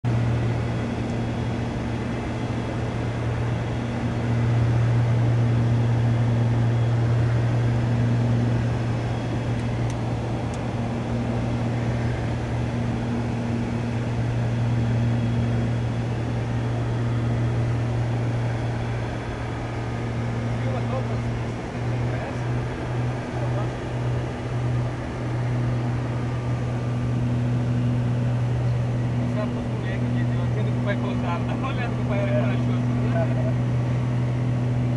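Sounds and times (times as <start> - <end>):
aircraft engines droning in cabin: 0.0 - 34.9.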